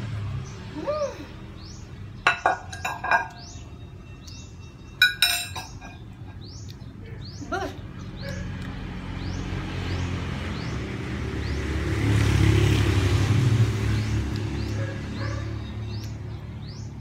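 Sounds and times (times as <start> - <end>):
small bird chirping: 0.4 - 10.8, 14.1 - 17.0
metal spoon clinking on plate: 2.2 - 3.6, 5.0 - 6.2.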